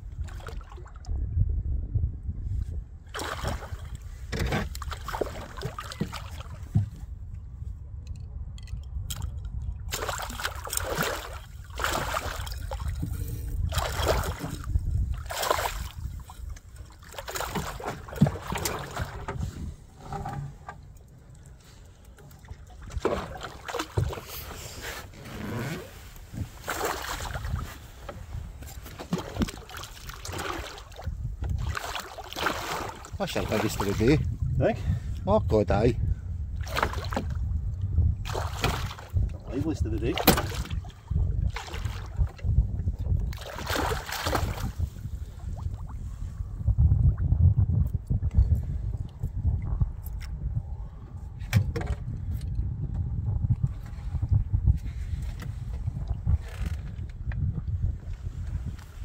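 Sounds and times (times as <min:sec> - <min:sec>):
water splashing beside boat: 0:00.0 - 0:01.1, 0:03.1 - 0:07.1, 0:09.1 - 0:34.7, 0:36.5 - 0:46.4
wind rumble on microphone: 0:00.0 - 0:59.0
boat knocks and bumps: 0:04.2 - 0:07.1, 0:17.1 - 0:21.0, 0:22.2 - 0:24.5, 0:26.4 - 0:30.6, 0:38.2 - 0:40.8, 0:51.4 - 0:53.1.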